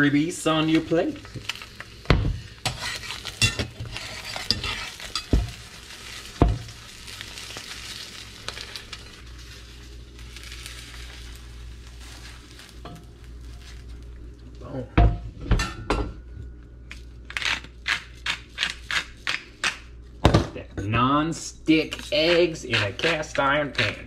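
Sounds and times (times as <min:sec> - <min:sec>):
eggs sizzling in a skillet: 0:00.0 - 0:14.6.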